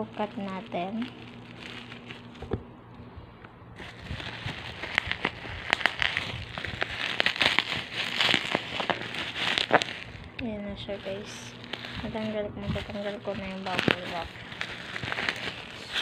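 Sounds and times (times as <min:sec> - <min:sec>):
bubble wrap and mailer crinkling: 0:00.0 - 0:02.7, 0:03.8 - 0:16.0.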